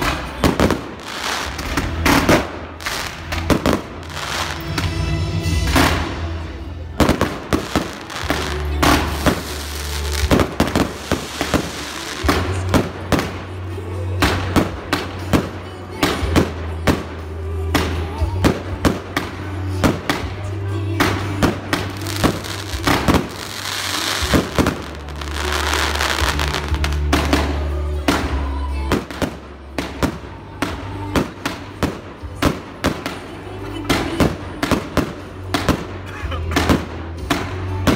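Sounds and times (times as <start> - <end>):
fireworks crackling hiss: 0.0 - 5.0, 5.6 - 13.6, 17.8 - 33.3
fireworks bangs: 0.0 - 13.6, 17.8 - 36.0
music with steady bass: 0.0 - 37.9.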